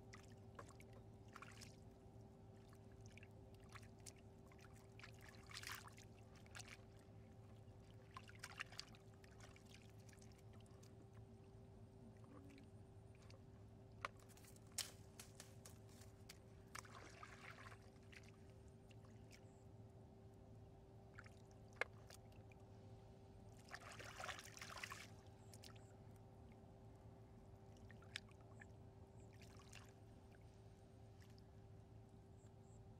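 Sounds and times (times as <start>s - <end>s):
splashing muddy water: 0.6s - 1.9s, 3.7s - 7.0s, 8.0s - 10.9s, 14.0s - 18.4s, 23.6s - 25.8s
low hum: 9.0s - 23.7s, 25.1s - 32.9s.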